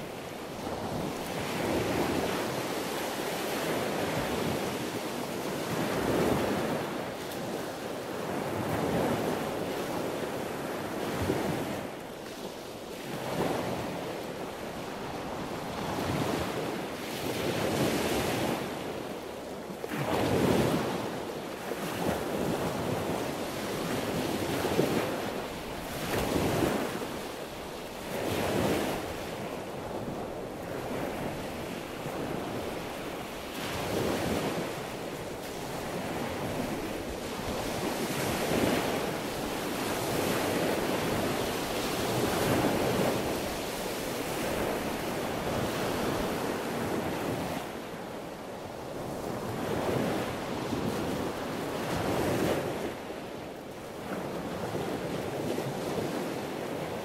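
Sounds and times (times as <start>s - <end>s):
sea waves breaking: 19.8s - 53.2s.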